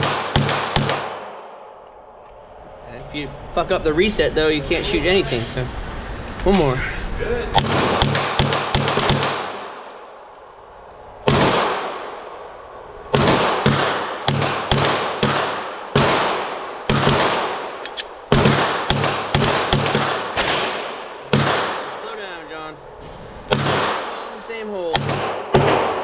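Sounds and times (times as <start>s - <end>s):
distant gunshots from other lanes: 0.0s - 1.8s, 7.6s - 9.9s, 11.2s - 12.3s, 13.1s - 22.2s, 23.4s - 26.0s
pistol shots echoing: 0.0s - 1.8s, 7.6s - 9.9s, 11.2s - 12.3s, 13.1s - 22.0s, 23.5s - 26.0s.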